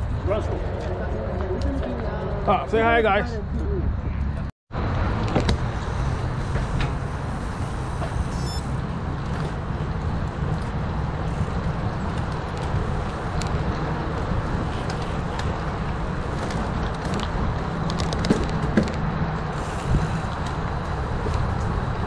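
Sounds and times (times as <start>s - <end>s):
bike tyres on pavement: 0.0s - 22.0s
wind rumble: 0.0s - 22.0s
bike clicks and rattles: 5.1s - 22.0s.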